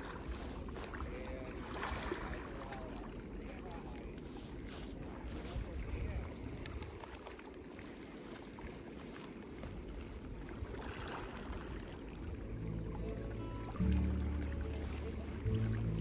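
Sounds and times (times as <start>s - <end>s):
water noise: 0.0s - 16.0s
wind: 0.0s - 16.0s
low rumble: 12.4s - 16.0s
music: 12.6s - 16.0s.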